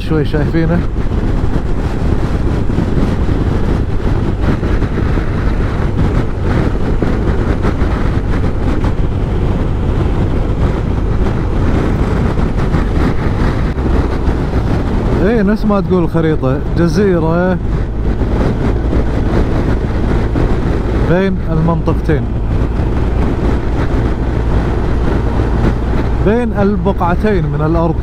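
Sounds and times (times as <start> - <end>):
motorcycle engine at speed: 0.0 - 28.0
wind rushing over microphone: 0.0 - 28.0.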